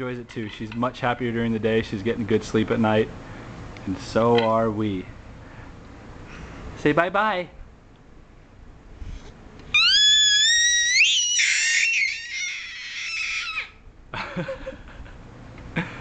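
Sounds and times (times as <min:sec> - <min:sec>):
baby squealing: 0:09.7 - 0:13.8.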